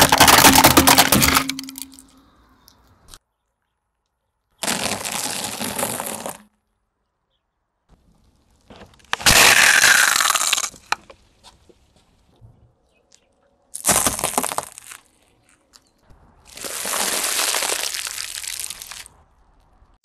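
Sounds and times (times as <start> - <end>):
breadsticks crunching under tyre: 0.0 - 2.1, 4.6 - 6.6, 8.0 - 12.4, 13.1 - 19.8.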